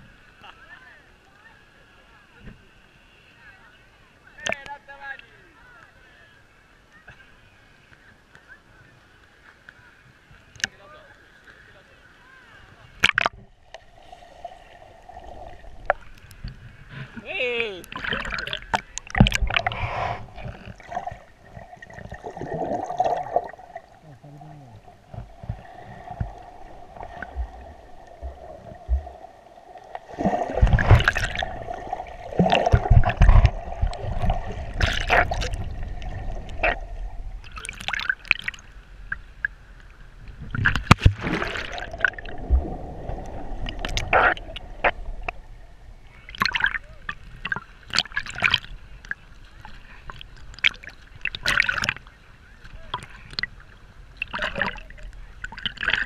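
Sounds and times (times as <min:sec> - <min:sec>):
water splashes: 0:07.9 - 0:56.0
seawater sloshing and gurgling: 0:13.0 - 0:56.0.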